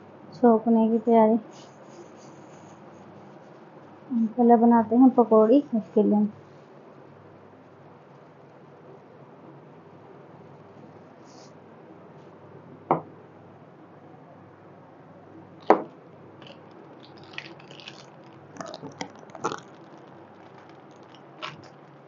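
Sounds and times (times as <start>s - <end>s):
hot oil popping and crackling: 15.6s - 22.0s.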